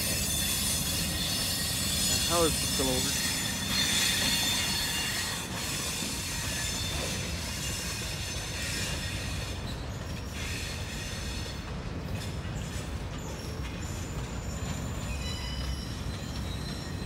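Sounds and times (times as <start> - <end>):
train wheels squealing: 0.0 - 17.0.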